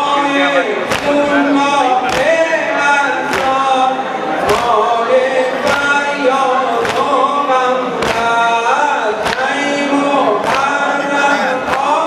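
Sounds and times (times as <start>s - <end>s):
men chanting in unison: 0.0s - 12.0s
chest beating slaps: 2.1s - 2.4s.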